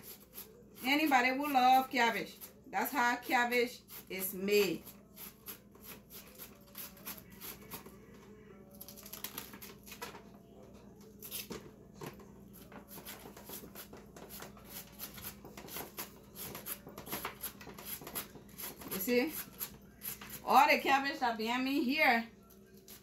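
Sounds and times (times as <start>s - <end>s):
knife slicing cabbage: 0.0s - 2.6s, 3.4s - 7.9s, 11.2s - 11.5s, 12.9s - 20.5s.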